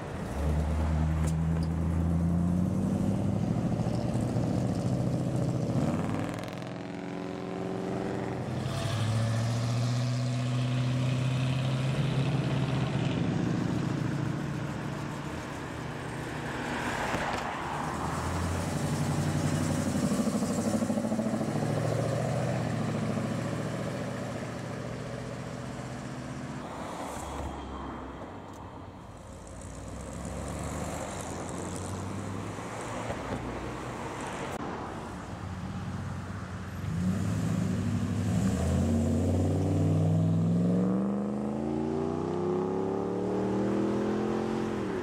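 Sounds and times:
car engines accelerating past: 0:36.7 - 0:45.0.

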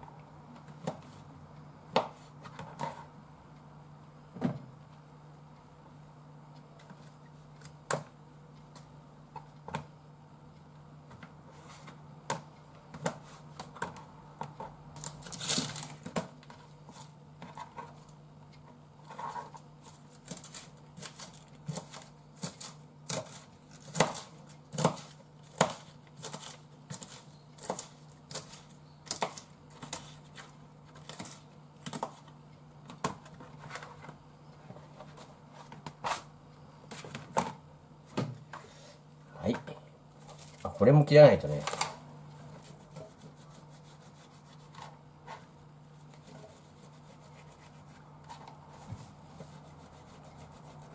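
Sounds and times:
steady low hum: 0:00.0 - 0:50.9
knife chopping on cutting board: 0:20.3 - 0:30.1.

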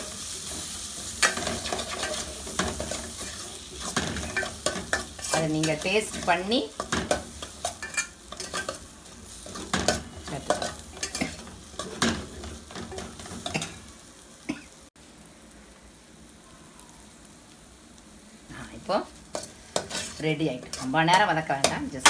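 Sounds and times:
food sizzling: 0:00.0 - 0:22.0
metal spoon scraping a pot: 0:09.6 - 0:12.1.

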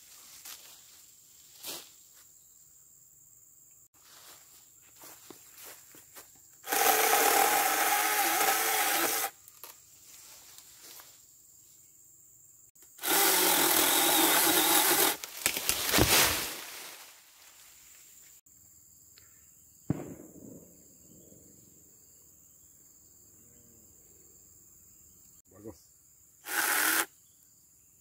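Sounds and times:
electric chainsaw motor cutting: 0:06.6 - 0:09.3, 0:12.9 - 0:15.3, 0:26.4 - 0:27.1
branch cracking and snapping: 0:09.5 - 0:09.8, 0:15.2 - 0:17.1.

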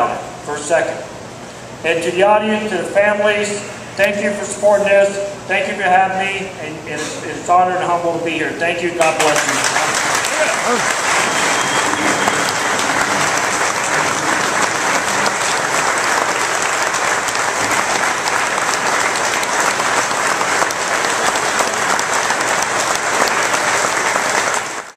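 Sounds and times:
audience applause: 0:09.0 - 0:24.9.

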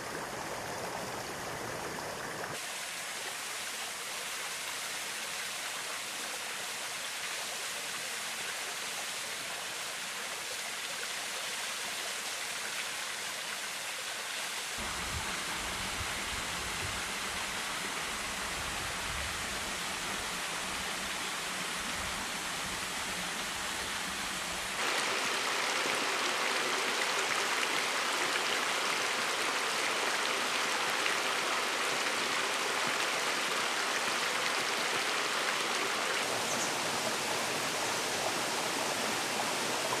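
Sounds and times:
water splashing over rocks: 0:24.8 - 0:40.0.

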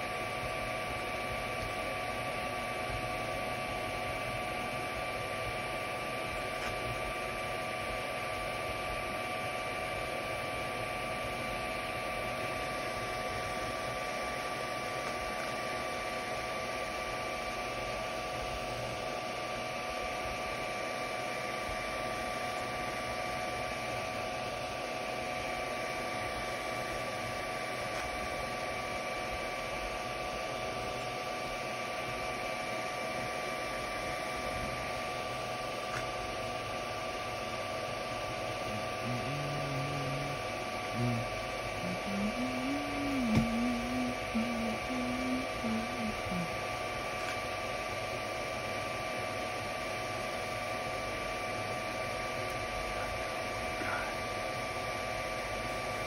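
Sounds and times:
cooling fans whirring: 0:00.0 - 0:56.0
constant whining tones: 0:38.5 - 0:46.8.

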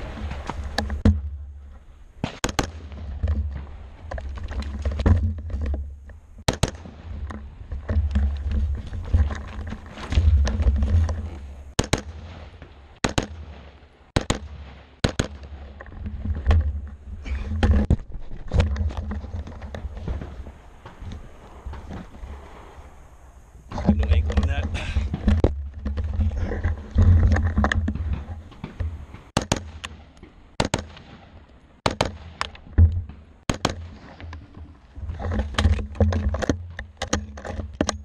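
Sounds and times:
rifle shots: 0:02.2 - 0:03.1, 0:06.5 - 0:07.1, 0:11.8 - 0:15.7, 0:28.6 - 0:32.6, 0:33.4 - 0:34.2.

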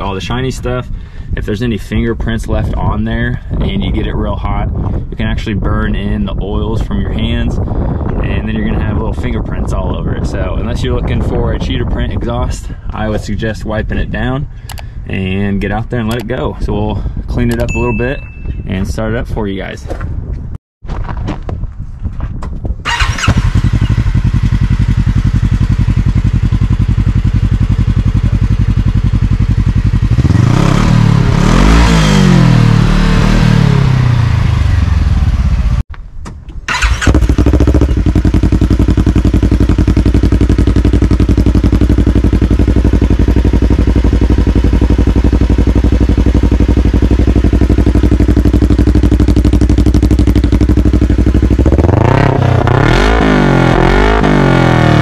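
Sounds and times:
engine idling and revving: 0:22.9 - 0:35.8, 0:36.7 - 0:55.0.

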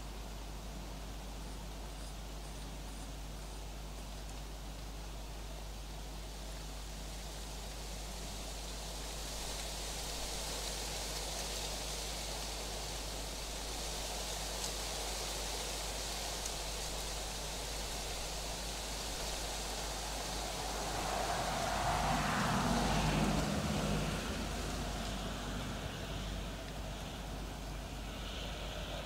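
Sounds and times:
low constant hum: 0:00.0 - 0:29.0
outdoor night background hiss: 0:00.0 - 0:29.0
distant vehicle passing: 0:19.6 - 0:27.4.

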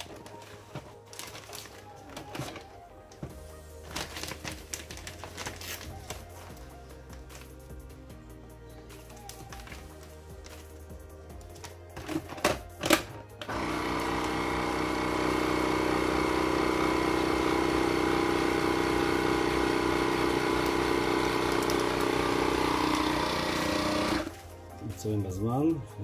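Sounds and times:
vacuum pump humming: 0:12.8 - 0:24.4.

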